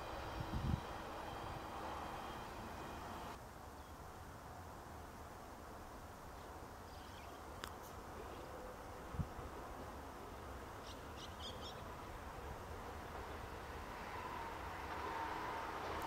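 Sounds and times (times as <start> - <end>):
faint bird chirps: 6.8 - 7.6, 10.8 - 11.9.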